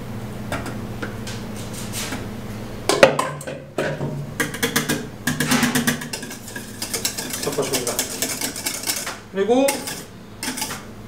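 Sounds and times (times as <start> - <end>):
whisk clanking against metal pot: 3.2 - 10.8
whisk scraping pot: 3.8 - 10.9.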